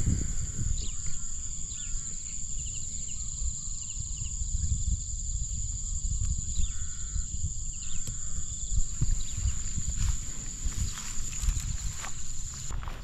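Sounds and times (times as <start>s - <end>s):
high-pitched insect trill: 0.0s - 13.0s
footsteps swishing through grass: 9.0s - 13.0s.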